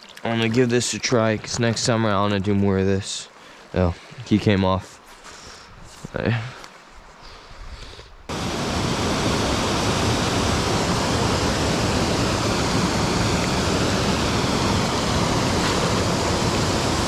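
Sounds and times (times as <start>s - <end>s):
waterfall pouring into pool: 8.3s - 17.0s.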